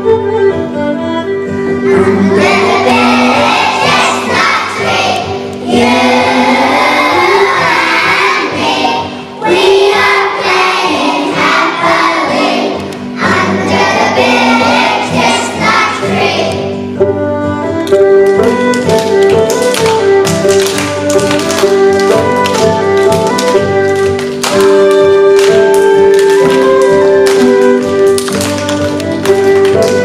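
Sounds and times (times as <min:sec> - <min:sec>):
instrumental backing music: 0:00.0 - 0:30.0
children's choir singing: 0:01.9 - 0:16.8.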